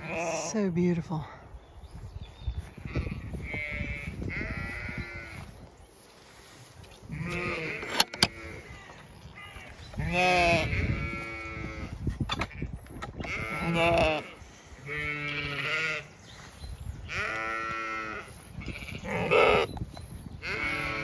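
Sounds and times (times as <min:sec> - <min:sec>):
sheep bleating: 0:00.0 - 0:00.4, 0:02.9 - 0:05.4, 0:07.1 - 0:12.0, 0:13.3 - 0:16.1, 0:17.1 - 0:19.7, 0:20.4 - 0:21.0
metal gate bolt clacking: 0:07.8 - 0:08.3.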